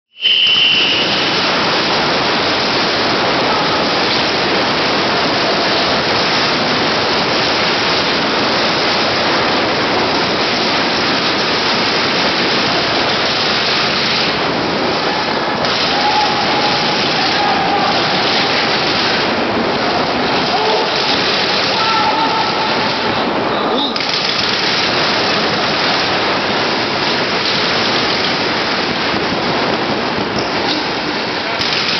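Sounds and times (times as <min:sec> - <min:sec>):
brief high tone: 0:00.1 - 0:01.5
paintball markers firing rapidly: 0:04.0 - 0:19.4, 0:20.2 - 0:21.8, 0:24.0 - 0:29.6, 0:31.6 - 0:31.9.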